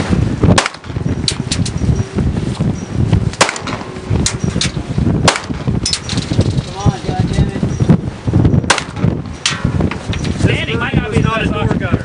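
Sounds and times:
wind rumble on microphone: 0.0s - 12.0s
gunshots: 3.4s - 3.9s, 5.2s - 5.6s.

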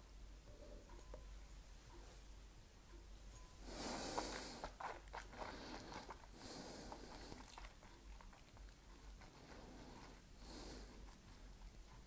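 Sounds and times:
soft breath out: 3.6s - 4.8s, 9.4s - 11.4s
wet mouth noises: 3.8s - 9.6s.

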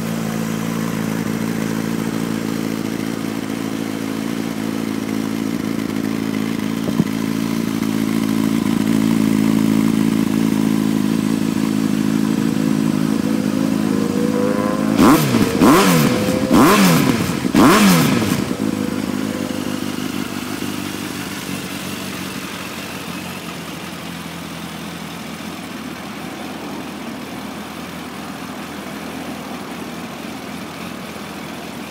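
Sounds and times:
motorcycle engine idling and revving: 0.0s - 31.9s.

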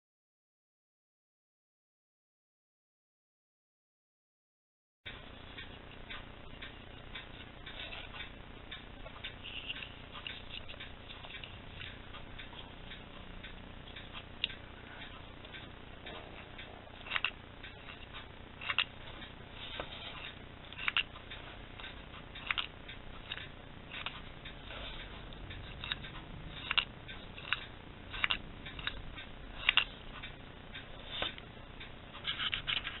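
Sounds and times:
wooden toy clacking: 25.5s - 30.3s.

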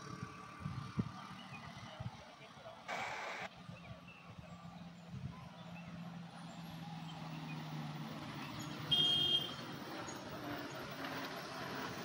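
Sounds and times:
bus horn blast: 8.9s - 9.6s.

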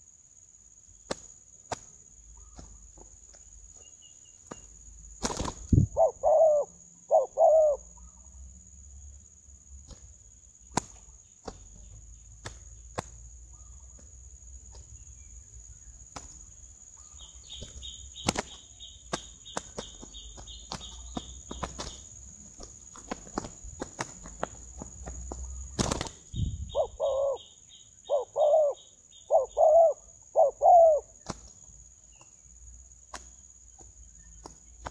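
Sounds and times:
high insect buzz: 0.0s - 34.8s
wings flapping and clapping: 1.1s - 2.0s, 4.4s - 5.8s, 9.8s - 10.1s, 10.7s - 11.7s, 12.4s - 13.3s, 16.1s - 16.4s, 17.6s - 26.3s, 31.2s - 31.6s, 33.1s - 34.9s
short hooting bird calls: 5.9s - 8.3s, 26.6s - 31.2s.

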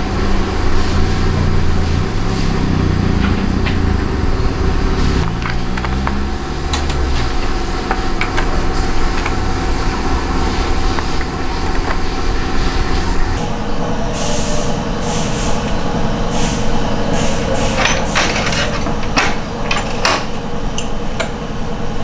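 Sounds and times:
motorcycle engine running: 0.0s - 13.4s.

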